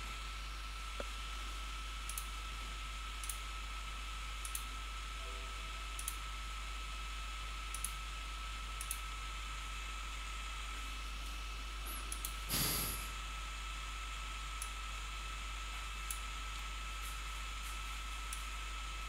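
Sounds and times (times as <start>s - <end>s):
computer mouse clicking: 4.4s - 4.7s, 7.7s - 8.0s
steady hiss: 12.4s - 13.2s.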